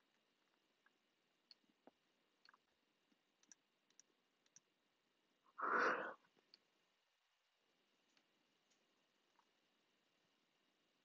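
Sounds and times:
mouse and keyboard clicks: 3.4s - 4.7s.

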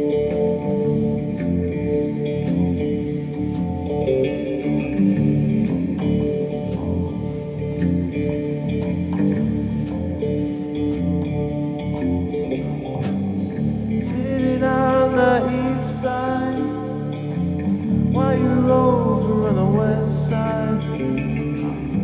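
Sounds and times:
live band playing: 0.0s - 22.0s
man singing lead vocal: 14.0s - 22.0s.

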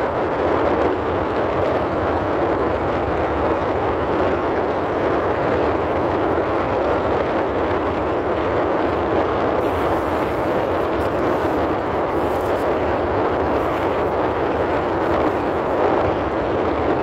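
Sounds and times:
rushing noise inside car cabin: 0.0s - 17.0s.

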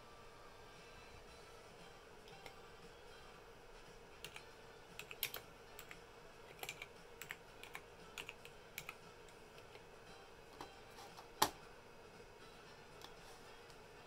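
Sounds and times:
laptop keyboard typing: 4.2s - 9.9s.

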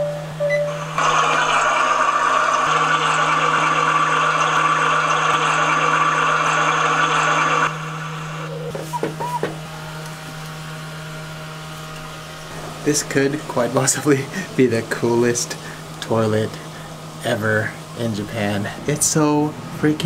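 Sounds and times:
steady low hum: 0.0s - 20.0s
rushing water sound from toilet: 0.7s - 8.6s.

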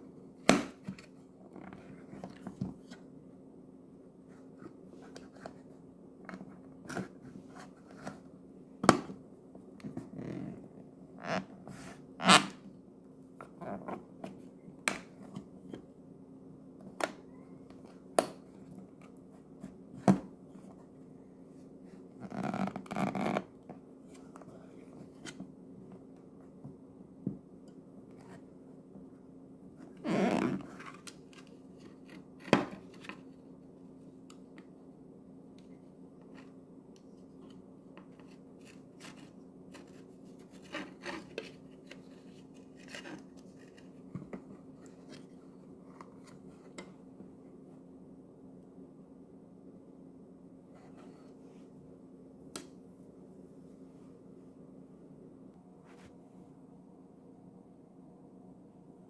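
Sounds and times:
rustling scrapes: 38.1s - 45.4s.

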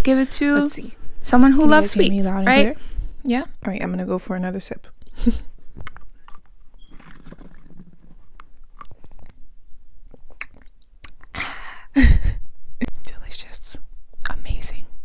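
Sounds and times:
sucking milkshake through straw: 6.8s - 9.4s.

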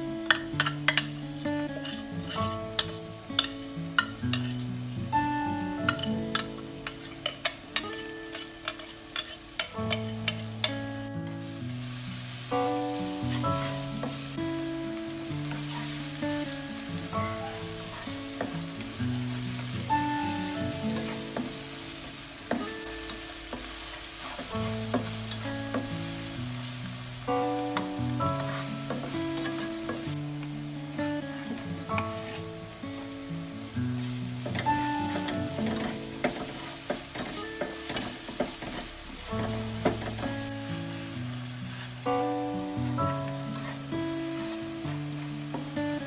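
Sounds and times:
aromatics sizzling in hot oil: 0.0s - 46.0s
plucked melody background music: 0.0s - 46.0s
spatula stirring in wok: 0.3s - 4.9s, 5.9s - 10.8s, 15.4s - 30.2s, 31.9s - 32.5s, 34.0s - 42.0s.

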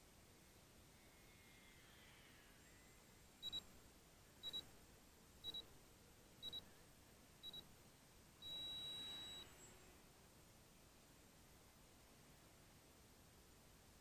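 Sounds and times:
electronic countdown beeps: 3.4s - 3.7s, 4.4s - 4.7s, 5.4s - 5.7s, 6.4s - 6.7s, 7.4s - 7.7s, 8.4s - 9.6s.

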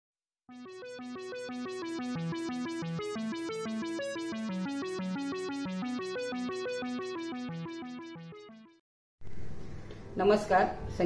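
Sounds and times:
electronic keyboard notes: 0.5s - 8.8s.

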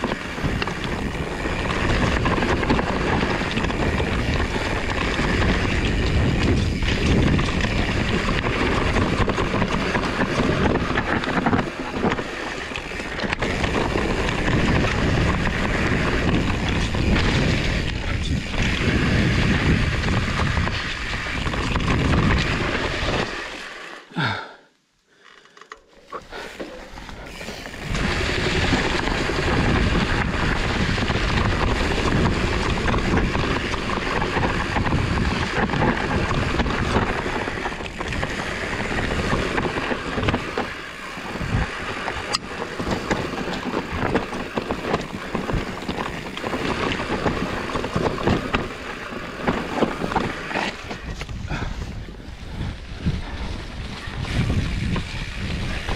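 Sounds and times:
wind noise on microphone: 0.0s - 23.5s, 26.3s - 55.9s
bike tyres rolling on trail: 0.0s - 55.9s.

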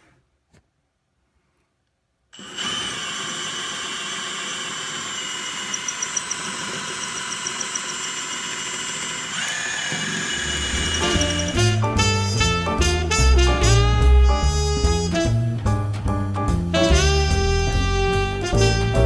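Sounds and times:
power drill boring through tile: 2.4s - 11.8s.

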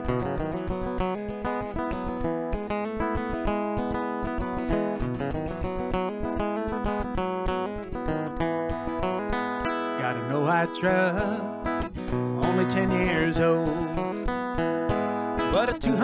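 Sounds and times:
acoustic guitar strumming: 0.0s - 16.0s
man singing: 10.0s - 14.4s, 15.4s - 16.0s.

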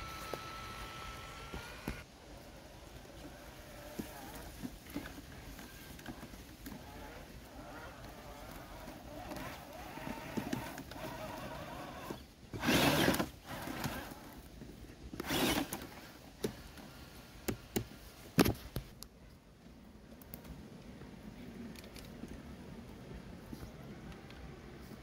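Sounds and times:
rc truck motor running: 0.0s - 14.4s, 15.2s - 15.8s.

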